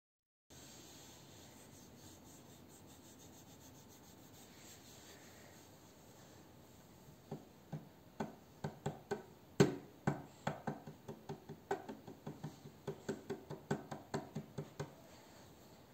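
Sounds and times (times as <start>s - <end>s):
fingers tapping on wooden table: 7.3s - 15.0s.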